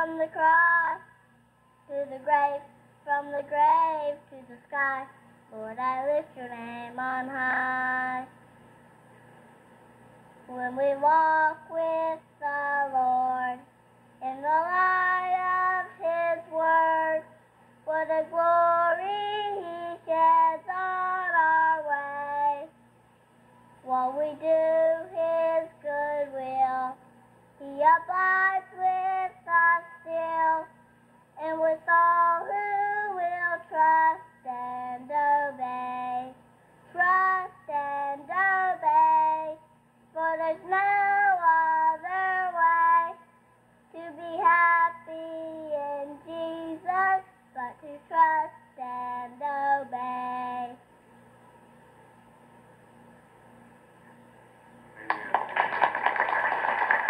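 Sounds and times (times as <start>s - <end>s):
boy singing: 0.0s - 1.0s, 1.9s - 8.3s, 14.2s - 17.3s, 17.9s - 22.7s, 27.6s - 30.7s, 31.4s - 39.6s, 40.2s - 43.2s, 44.0s - 50.8s.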